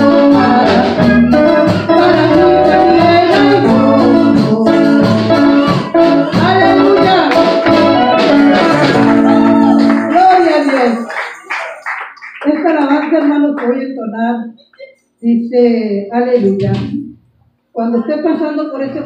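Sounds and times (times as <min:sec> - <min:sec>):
person singing: 0:00.0 - 0:11.0
drums: 0:00.0 - 0:11.1
electric guitar: 0:00.0 - 0:11.3
organ keyboard chords: 0:00.0 - 0:11.8.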